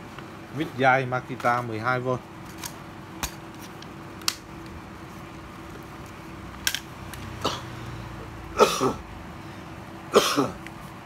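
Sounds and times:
man clearing his throat: 0:07.4 - 0:07.8, 0:08.6 - 0:09.0, 0:10.1 - 0:10.6.

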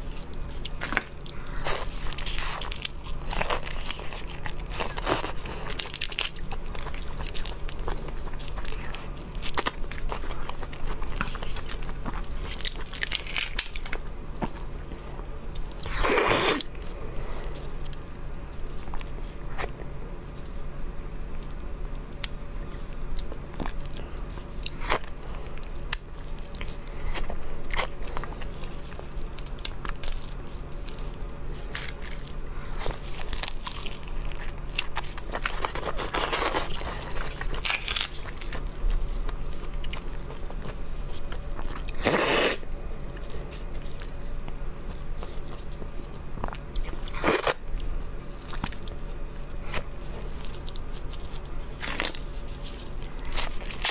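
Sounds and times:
prawn shells cracking: 0:00.5 - 0:14.6, 0:27.6 - 0:42.2, 0:48.4 - 0:53.9
chewing: 0:21.2 - 0:53.9.

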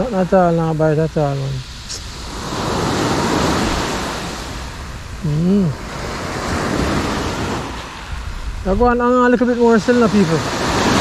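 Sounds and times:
small waves breaking on gravel shore: 0:05.8 - 0:11.0.

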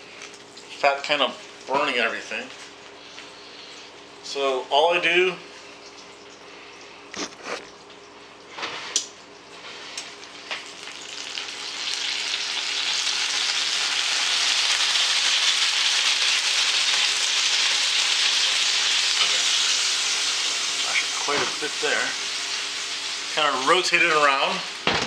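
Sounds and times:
hot fat sizzling on baking tray: 0:08.5 - 0:25.0.

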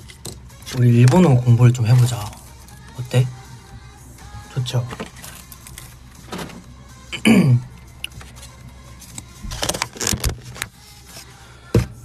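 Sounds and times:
steady low hum: 0:00.0 - 0:09.7
clicking and rustling handling: 0:04.8 - 0:06.7, 0:08.0 - 0:11.3.

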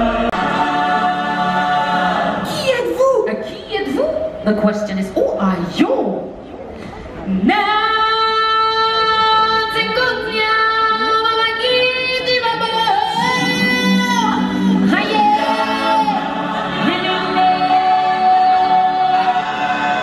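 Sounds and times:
lower voice singing: 0:00.0 - 0:02.5
stage show music: 0:00.0 - 0:03.0, 0:09.1 - 0:20.0.

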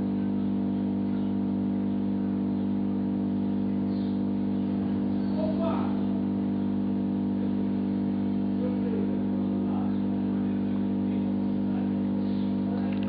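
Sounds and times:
low hum of held tones: 0:00.0 - 0:13.0
faint voices: 0:08.5 - 0:13.0.

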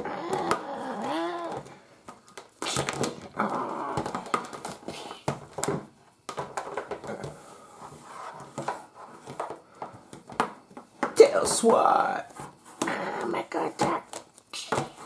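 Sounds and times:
person growling: 0:00.0 - 0:01.6, 0:03.3 - 0:04.2.

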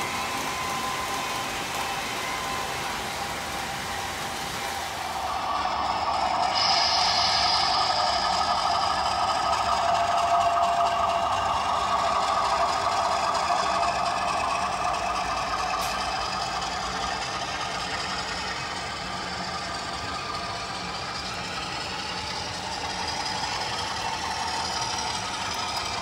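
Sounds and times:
brief whine: 0:00.0 - 0:12.3
model train running: 0:00.0 - 0:26.0.

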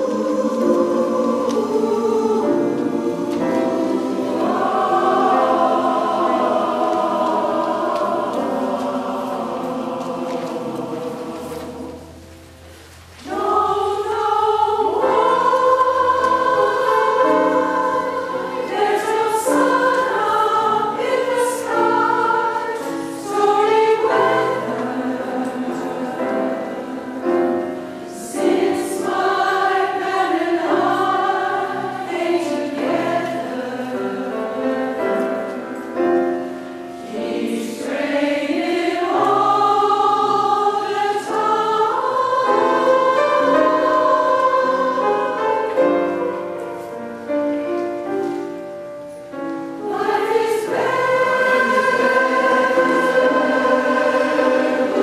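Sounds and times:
choir singing in harmony: 0:00.0 - 0:55.0.

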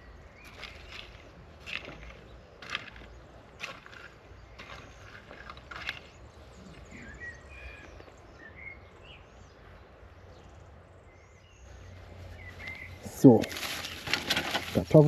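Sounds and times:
small birds chirping: 0:00.0 - 0:15.0
hoe scraping into soil: 0:00.4 - 0:06.2, 0:12.6 - 0:15.0.

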